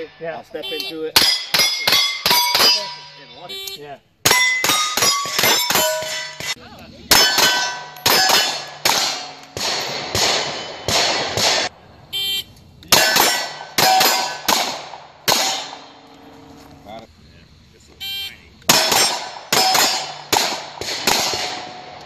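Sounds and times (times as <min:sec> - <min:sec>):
steel plate target clanging: 0:01.2 - 0:03.4, 0:04.2 - 0:09.5, 0:12.9 - 0:14.7, 0:18.7 - 0:20.4
rapid gunfire: 0:04.6 - 0:11.7, 0:13.0 - 0:15.8, 0:18.7 - 0:21.9.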